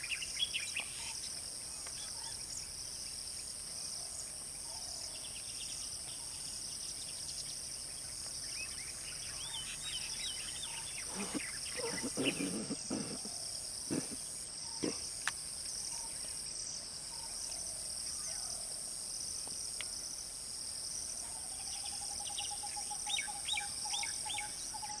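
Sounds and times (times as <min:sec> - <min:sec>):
insects buzzing: 0:00.0 - 0:25.0
birds calling: 0:08.8 - 0:16.1.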